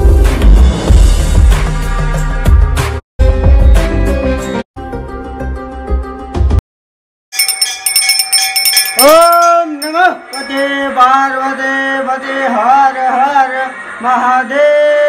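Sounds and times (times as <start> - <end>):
music: 0.0 - 6.6
metal temple bells ringing: 7.4 - 11.0
person chanting a devotional song: 9.0 - 15.0.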